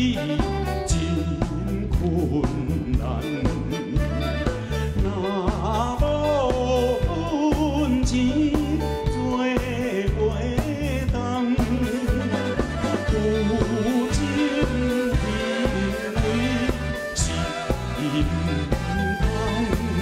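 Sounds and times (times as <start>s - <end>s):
live band with bass beat: 0.0s - 20.0s
man singing with vibrato: 0.0s - 20.0s.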